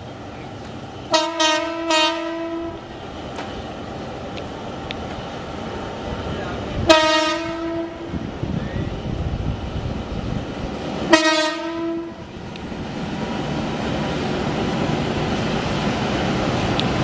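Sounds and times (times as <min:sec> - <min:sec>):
train rumble: 0:00.0 - 0:17.0
train horn: 0:01.1 - 0:02.8, 0:06.8 - 0:08.1, 0:11.1 - 0:12.2.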